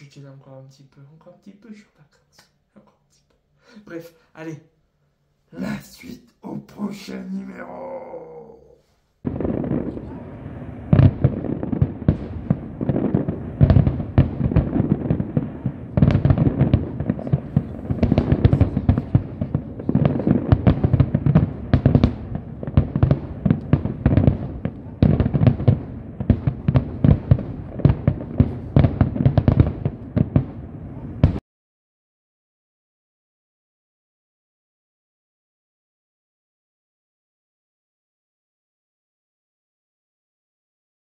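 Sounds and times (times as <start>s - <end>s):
fireworks bangs and crackles: 9.2s - 31.4s.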